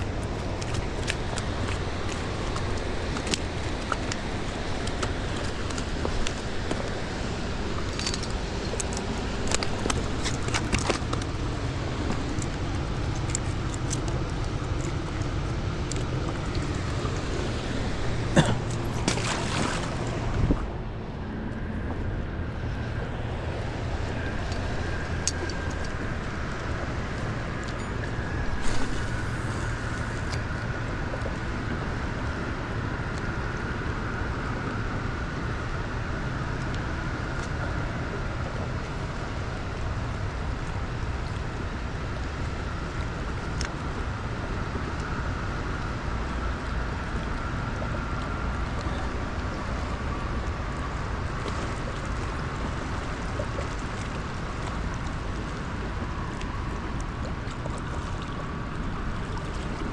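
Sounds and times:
turbulent river water rushing: 0.0s - 20.8s
faint steady whine: 0.0s - 59.9s.

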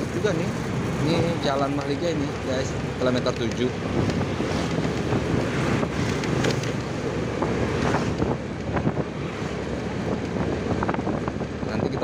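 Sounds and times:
tyre noise on road: 0.0s - 12.0s
wind rush on microphone: 0.0s - 12.0s.

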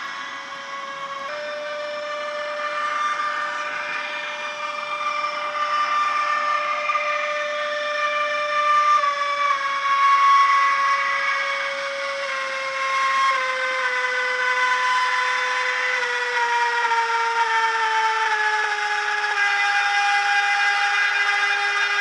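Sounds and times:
electric locomotive motor whine: 0.0s - 22.0s.

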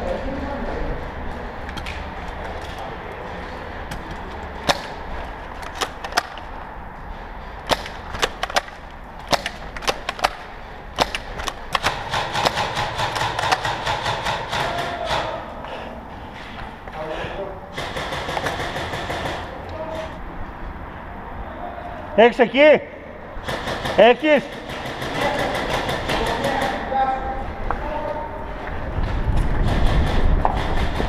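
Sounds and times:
airsoft guns firing: 4.6s - 5.0s, 7.6s - 15.5s, 17.7s - 19.6s, 23.4s - 26.9s, 29.6s - 31.0s.

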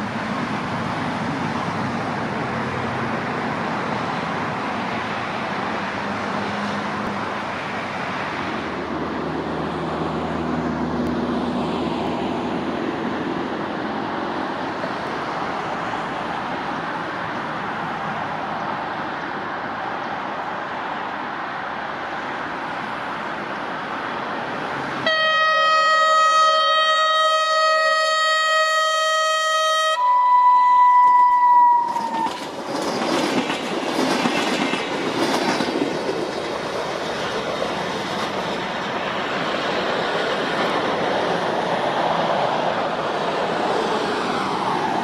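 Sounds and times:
train rushing and wheels clattering: 0.0s - 25.4s, 30.4s - 45.0s
train horn: 25.0s - 32.4s.

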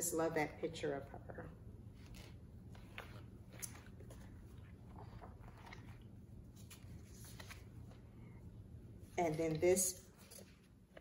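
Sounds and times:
low room hum: 0.0s - 11.0s
paper pages turning: 1.9s - 8.0s.

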